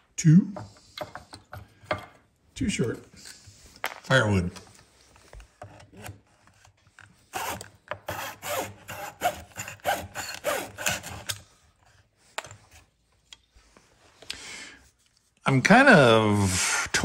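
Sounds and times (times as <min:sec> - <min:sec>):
saw rasping through wood: 0:07.3 - 0:11.4.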